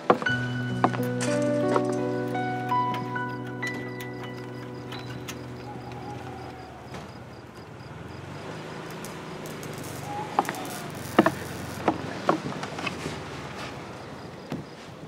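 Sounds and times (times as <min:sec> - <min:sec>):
music: 0:00.0 - 0:06.6.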